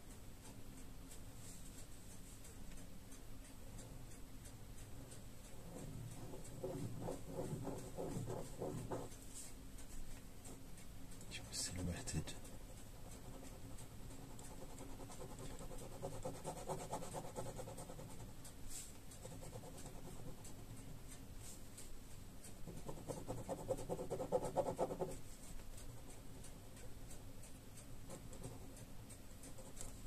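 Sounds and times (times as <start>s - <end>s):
pen scratching on paper: 5.5s - 9.1s, 12.5s - 20.8s, 22.6s - 25.2s.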